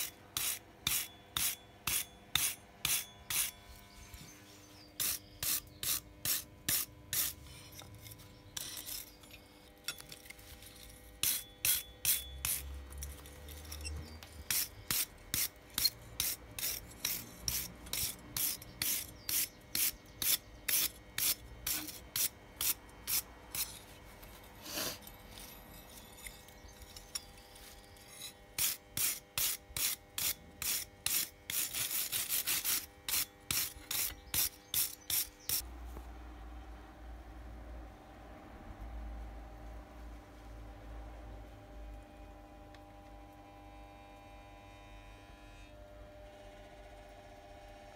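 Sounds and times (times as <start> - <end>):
wire brush scrubbing iron: 0.0 - 3.6, 5.0 - 12.7, 14.5 - 35.6.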